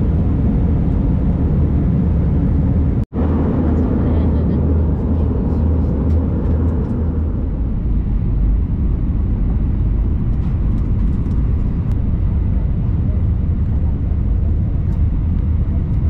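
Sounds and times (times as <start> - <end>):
airliner cabin roar: 0.0 - 16.0.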